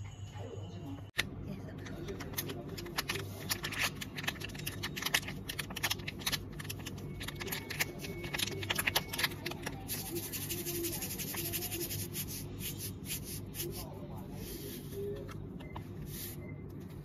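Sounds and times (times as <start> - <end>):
sachet crinkling: 2.2 - 13.8.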